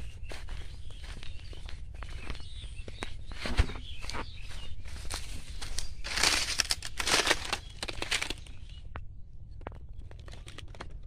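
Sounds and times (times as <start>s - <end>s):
footsteps through grass and leaves: 0.0s - 8.6s.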